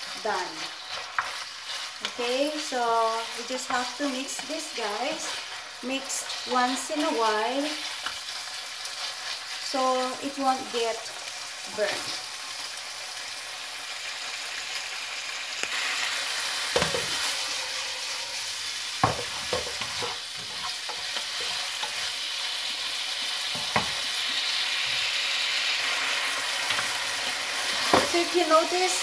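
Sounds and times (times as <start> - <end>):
chicken sizzling in hot oil: 0.0 - 29.0
wooden spatula knocking on pan: 19.0 - 20.2.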